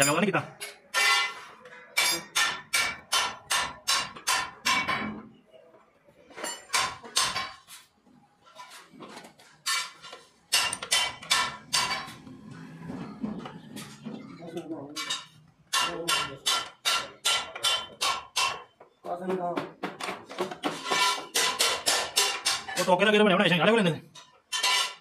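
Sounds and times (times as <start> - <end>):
hammer striking metal: 0.0 - 5.2, 6.5 - 7.6, 9.7 - 12.3, 14.9 - 18.7, 19.9 - 22.9.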